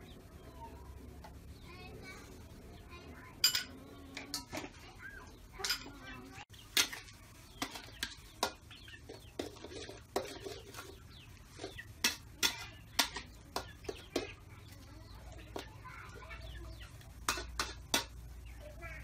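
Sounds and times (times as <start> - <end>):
metal spatula scraping a wok: 6.7 - 13.2
chicken clucking: 7.4 - 12.0.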